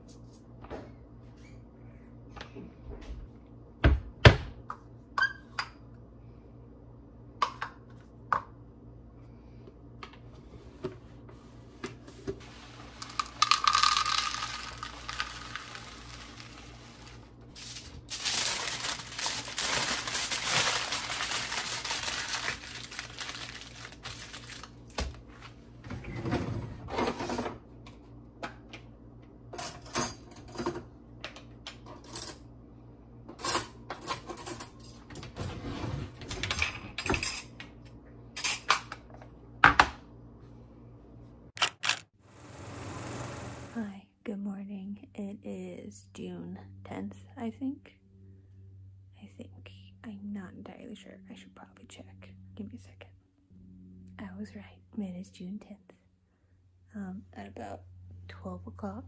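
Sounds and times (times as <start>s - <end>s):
plastic bag rustling: 12.4s - 25.4s
dry food pouring into container: 13.0s - 24.7s.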